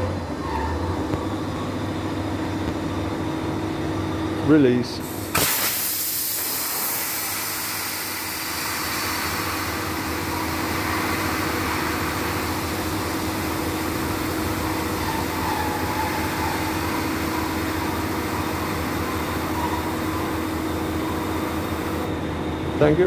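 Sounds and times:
compressed air hissing: 5.0 - 14.0.

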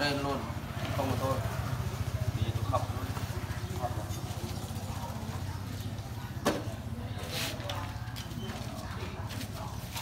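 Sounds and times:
engine idling with fast chug: 0.1 - 6.1.

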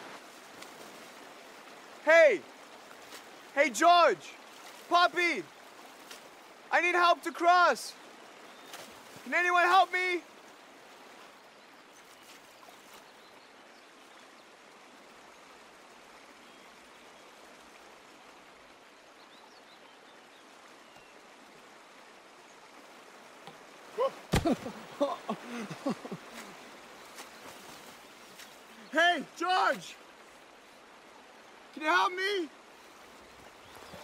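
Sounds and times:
stream water running: 0.0 - 34.0
sudden thump: 24.3 - 24.7.

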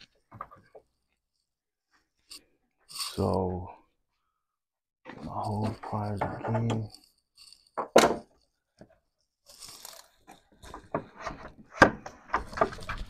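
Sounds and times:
rubber hose clicking and crunching: 5.1 - 13.0.

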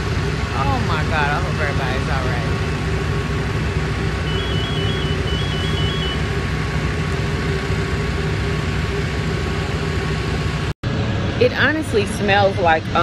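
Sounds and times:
fire engine idling: 0.0 - 13.0
high two-pitch electronic tone: 4.2 - 6.2.

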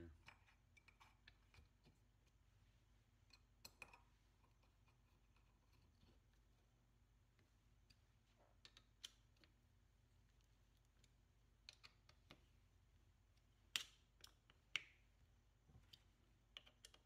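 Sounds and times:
metallic clicks and taps of screws: 11.0 - 12.4, 15.8 - 17.0.

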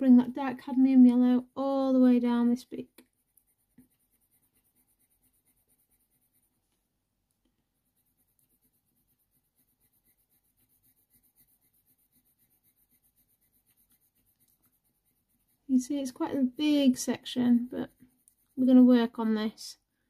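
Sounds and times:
coloured pencil scratching paper: 2.8 - 6.6, 7.8 - 19.2.

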